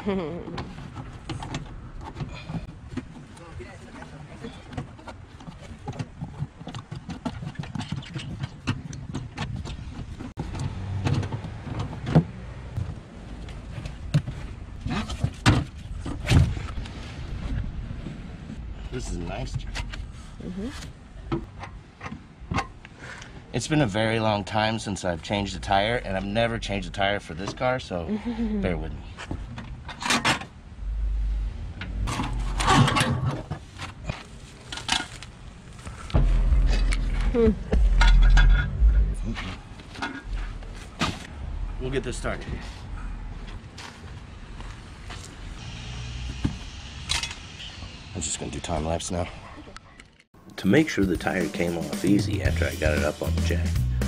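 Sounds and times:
low rumble: 36.0 - 43.4.

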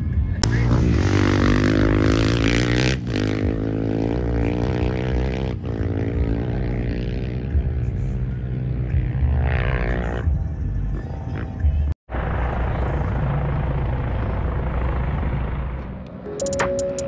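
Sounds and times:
off-road vehicle engine droning: 0.0 - 17.0.

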